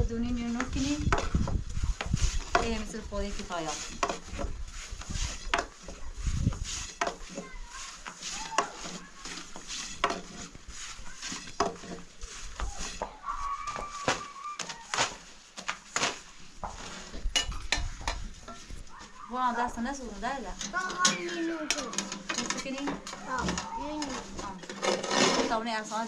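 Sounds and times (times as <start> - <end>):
dishes and utensils clattering: 2.4 - 13.2, 16.8 - 19.2, 19.9 - 25.9.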